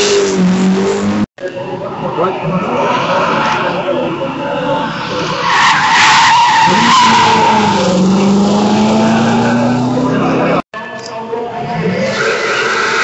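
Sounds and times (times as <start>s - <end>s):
tyres squealing: 5.0s - 9.8s
car engine accelerating: 6.7s - 10.6s.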